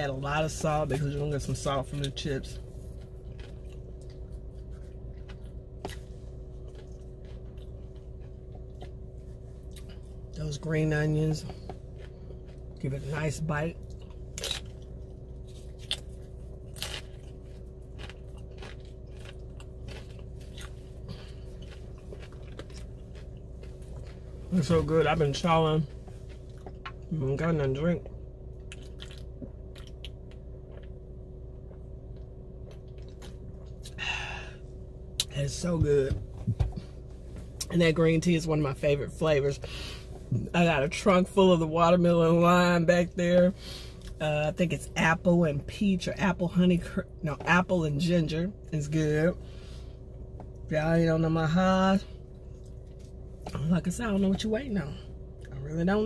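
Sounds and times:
steady low hum: 0.0s - 56.0s
person chewing chips: 0.1s - 10.4s, 11.3s - 27.4s, 28.0s - 34.5s.

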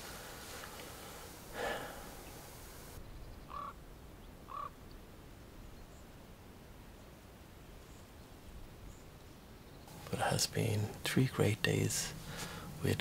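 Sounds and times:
steady hiss: 0.0s - 3.0s, 9.9s - 13.0s
crows cawing: 3.5s - 3.8s, 4.5s - 4.8s.

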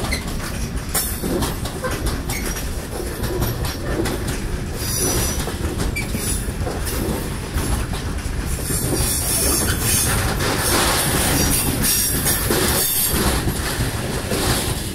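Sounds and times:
train wheels rumbling on rails: 0.0s - 14.9s
wheels clanking over rail joints: 0.0s - 14.9s.

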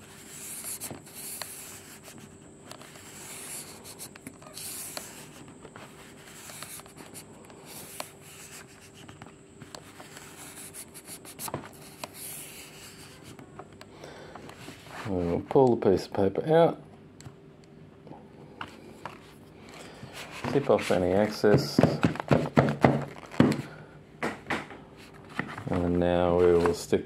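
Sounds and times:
paper scraping: 0.0s - 9.2s, 9.8s - 13.4s, 20.1s - 21.5s.

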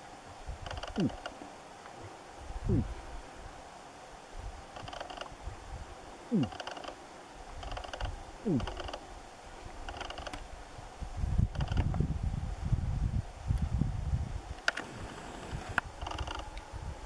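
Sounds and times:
moose grunting: 0.8s - 1.3s, 2.6s - 3.0s, 6.3s - 7.0s, 7.6s - 9.0s
soft rustling ticks: 4.7s - 5.4s, 6.4s - 9.0s, 9.7s - 10.5s, 14.6s - 16.7s.

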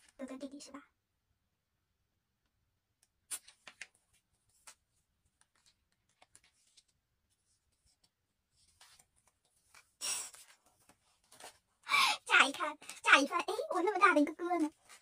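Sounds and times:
book pages turning: 3.1s - 11.8s, 12.7s - 15.0s.

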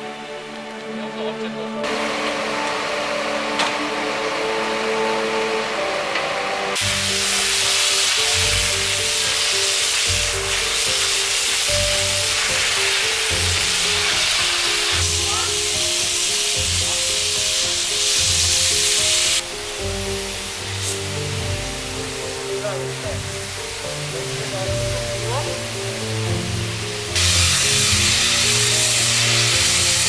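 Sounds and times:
background music: 0.0s - 30.0s
fire hose water jet hissing: 6.7s - 30.0s.

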